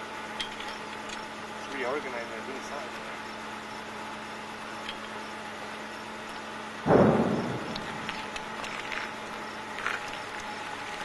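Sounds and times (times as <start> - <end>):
thunder clap and rumbling: 6.9 - 8.3.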